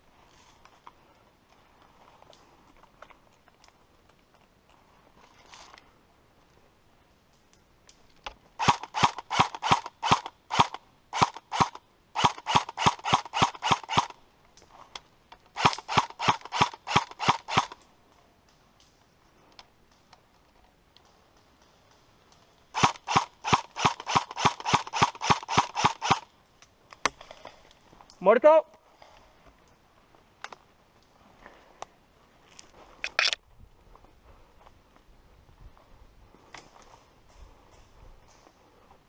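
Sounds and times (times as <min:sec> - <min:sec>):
airsoft rifle shots: 0:08.6 - 0:14.1, 0:22.8 - 0:26.2.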